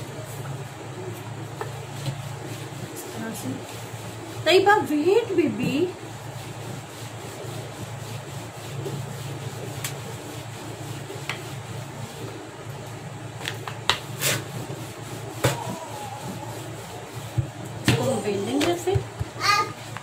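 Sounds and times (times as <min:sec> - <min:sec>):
rolling pin rubbing dough: 0:01.0 - 0:12.6, 0:14.0 - 0:20.0
rolling pin knocking on board: 0:15.4 - 0:15.8.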